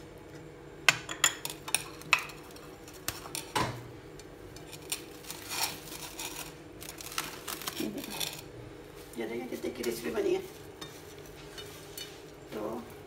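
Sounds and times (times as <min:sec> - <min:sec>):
plastic cling wrap crinkling: 0:04.6 - 0:11.4.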